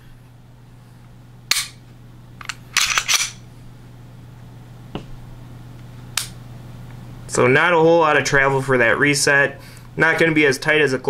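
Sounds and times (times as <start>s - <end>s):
pistol slide racking: 2.4s - 3.4s.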